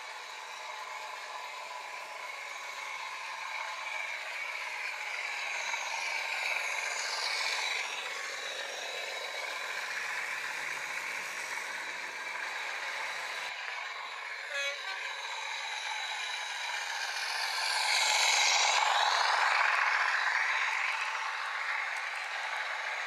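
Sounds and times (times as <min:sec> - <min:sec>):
diesel engine sound from speaker: 0:00.0 - 0:23.0
model train clattering on track: 0:15.3 - 0:23.0.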